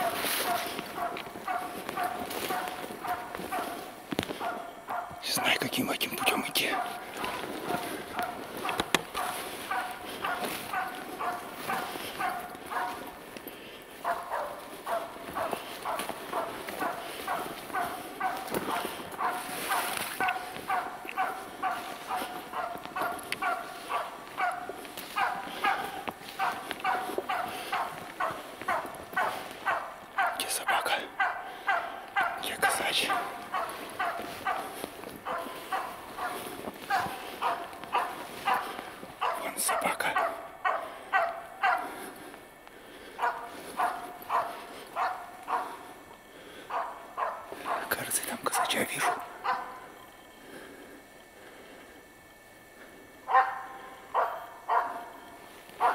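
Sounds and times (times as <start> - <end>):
dog barking: 0.0 - 13.2, 14.0 - 42.2, 43.2 - 45.9, 46.6 - 50.0, 53.3 - 55.9.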